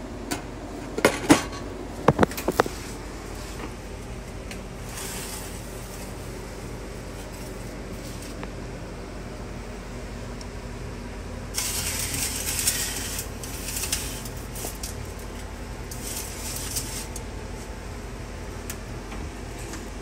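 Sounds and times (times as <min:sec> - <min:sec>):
steady low hum: 0:00.0 - 0:20.0
foil pan crinkling and scraping: 0:02.1 - 0:03.7, 0:04.8 - 0:06.4, 0:07.0 - 0:08.4, 0:11.6 - 0:17.2.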